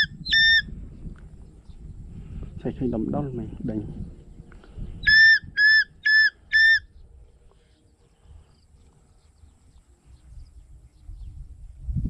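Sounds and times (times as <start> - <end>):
shrill whistle blasts: 5.0 - 6.9.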